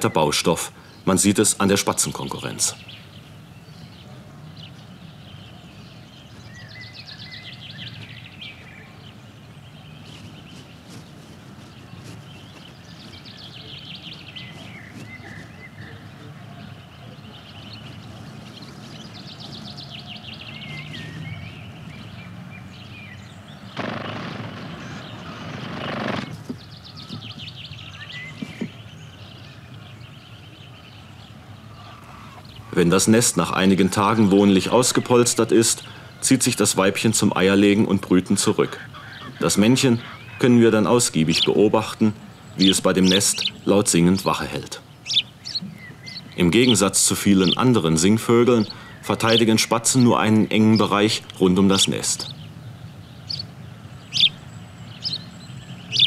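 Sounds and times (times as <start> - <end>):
songbird trilling phrases: 0.0 - 56.0
low outdoor rumble: 1.2 - 55.8
loud rush of noise: 23.8 - 26.5.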